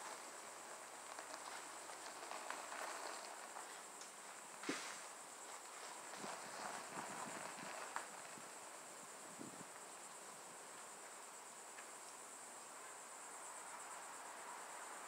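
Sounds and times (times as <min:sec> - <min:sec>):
insects chirring: 0:00.0 - 0:15.0
footstep on gravel: 0:01.0 - 0:03.8, 0:04.6 - 0:08.3.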